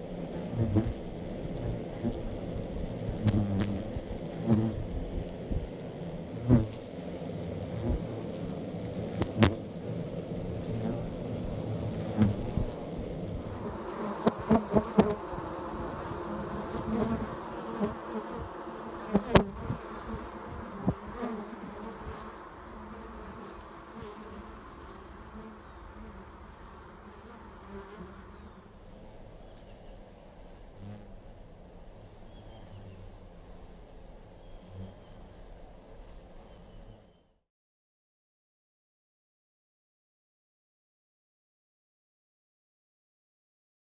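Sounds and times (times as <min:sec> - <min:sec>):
bees buzzing: 0:00.1 - 0:28.9.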